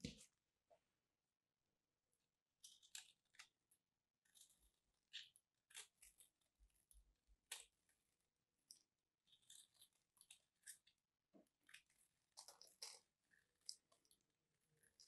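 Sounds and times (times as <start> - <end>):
knife cutting crumbly soap: 4.2 - 8.0.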